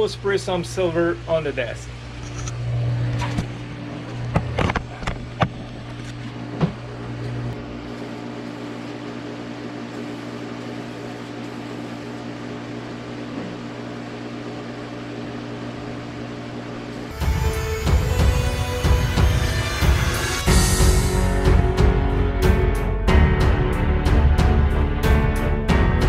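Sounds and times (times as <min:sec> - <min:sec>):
steady mechanical hum: 0:00.0 - 0:20.5.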